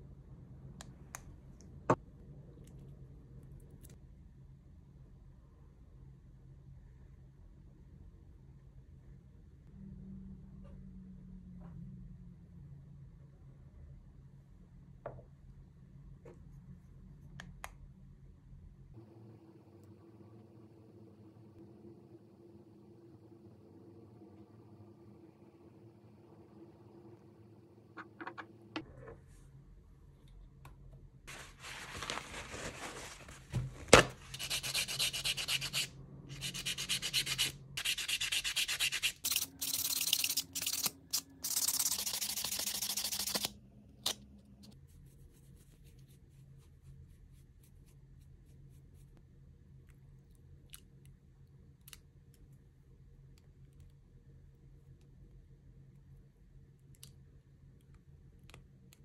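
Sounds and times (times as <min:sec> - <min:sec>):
nail file rubbing on nail: 0:34.3 - 0:43.5.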